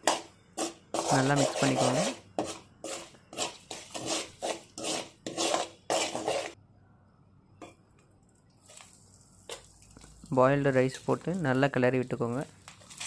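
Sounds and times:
metal spoon scraping a pot: 0:00.0 - 0:06.6.

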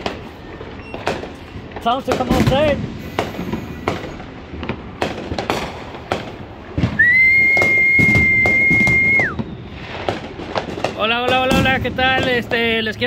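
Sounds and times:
gunfire and firework bangs: 0:00.0 - 0:13.0
high whistle: 0:07.0 - 0:10.0.

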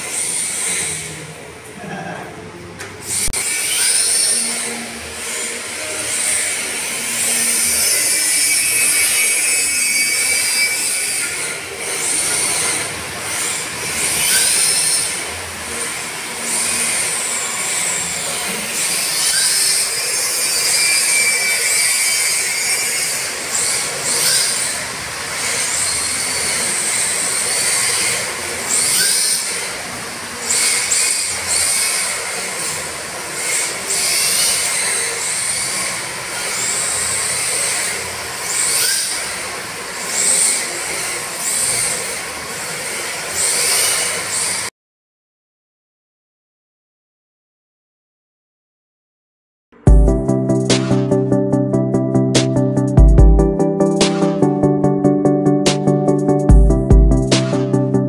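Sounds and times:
electric motors whining: 0:02.4 - 0:44.7
tyres squealing on tile: 0:03.2 - 0:15.3, 0:16.5 - 0:29.8, 0:30.4 - 0:39.4.

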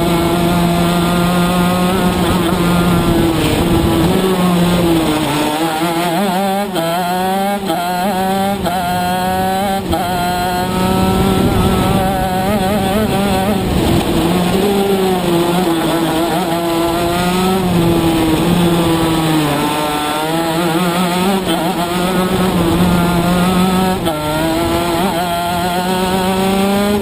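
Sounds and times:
kart engine revving: 0:00.0 - 0:27.0.

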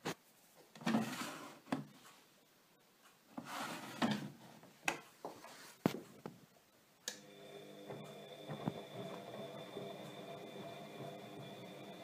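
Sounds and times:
plastic drawer sliding: 0:00.8 - 0:01.9, 0:03.4 - 0:04.4.

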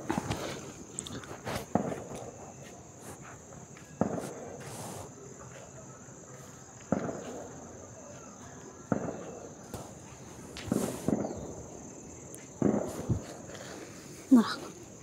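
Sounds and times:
hands rustling through fur: 0:00.0 - 0:05.1, 0:09.9 - 0:11.2.

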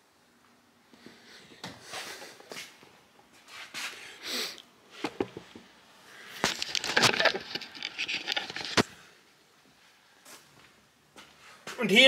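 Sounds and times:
camera handling rustles: 0:06.3 - 0:09.0.

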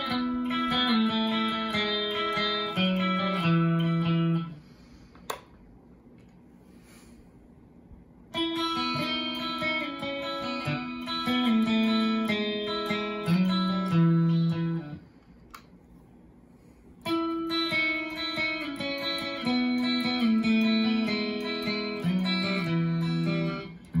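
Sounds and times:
electric guitar melody: 0:00.0 - 0:04.6, 0:08.3 - 0:15.1, 0:17.0 - 0:24.0.

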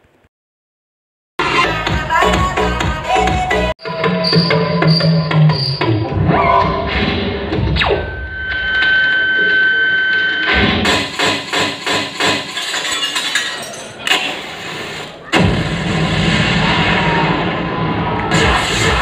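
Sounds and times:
electronic dance music: 0:01.4 - 0:12.8, 0:14.2 - 0:19.0.

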